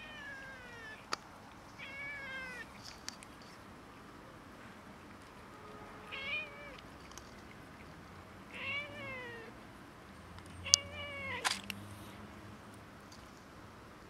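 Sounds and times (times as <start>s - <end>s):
cat meowing: 0.0s - 1.1s, 1.8s - 2.8s, 5.9s - 6.8s, 8.5s - 9.6s, 10.6s - 11.6s.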